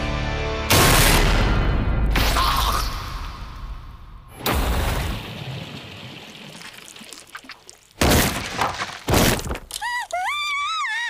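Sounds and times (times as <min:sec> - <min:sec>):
cartoon crashing impacts: 0:04.3 - 0:05.9.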